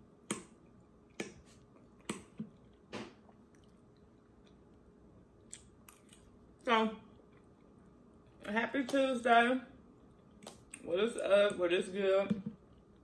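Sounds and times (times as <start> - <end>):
wet mouth clicks and smacks: 0.3 - 4.6, 5.4 - 6.3, 10.0 - 10.9.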